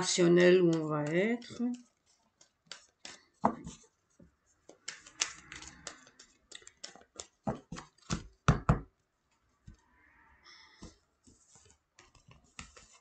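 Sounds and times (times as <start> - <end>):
cards being shuffled: 0.2 - 3.9, 4.5 - 8.4, 10.8 - 13.0.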